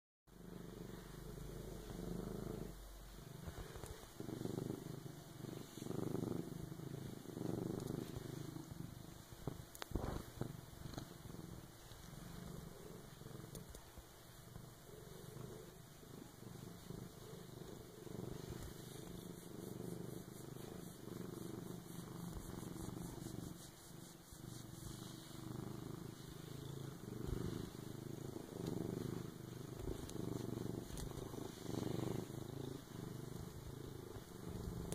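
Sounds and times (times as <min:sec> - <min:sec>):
cat purring: 0:00.3 - 0:34.9.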